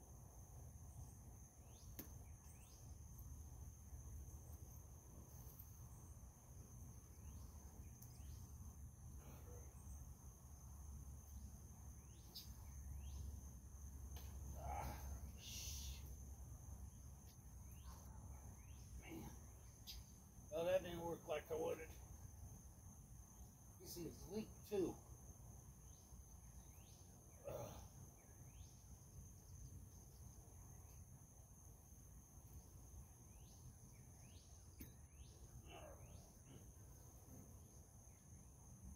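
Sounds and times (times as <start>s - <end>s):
insect drone: 0.0s - 38.9s
bird chirps: 1.0s - 3.2s, 7.0s - 10.1s, 11.2s - 13.5s, 16.9s - 20.3s, 25.8s - 31.0s.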